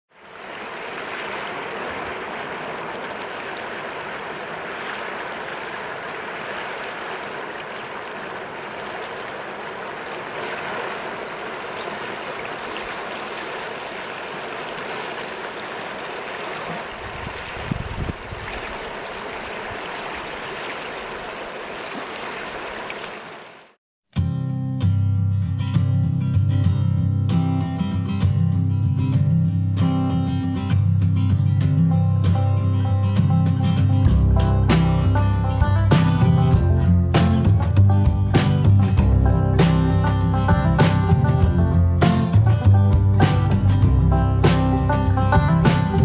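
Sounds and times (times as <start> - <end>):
water rushing over rocks: 0.1 - 23.8
acoustic guitar music: 24.2 - 46.0
low bumps: 34.1 - 46.0.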